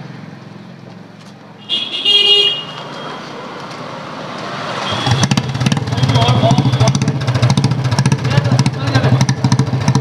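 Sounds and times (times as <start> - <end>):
street background noise: 0.0 - 10.0
vehicle horn toot: 1.6 - 3.3, 4.8 - 7.1.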